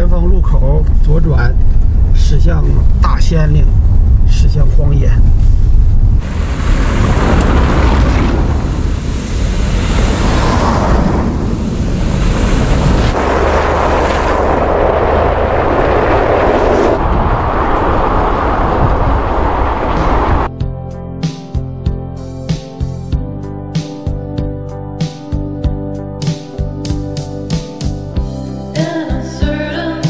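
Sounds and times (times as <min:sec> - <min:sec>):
low rumble of tyres and engine: 0:00.0 - 0:20.5
wind rushing over microphone: 0:00.0 - 0:20.5.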